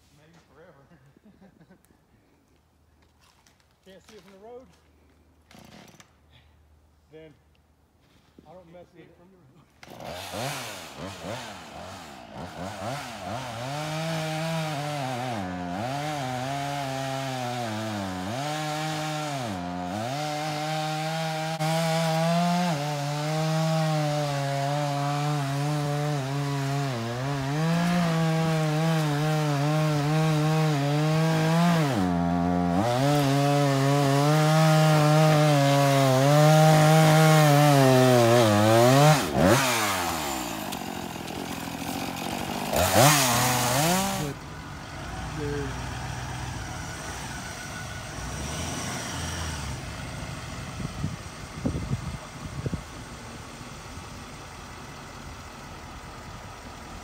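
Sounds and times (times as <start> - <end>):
chainsaw cutting wood: 5.4 - 6.2, 9.7 - 44.4, 47.0 - 52.7.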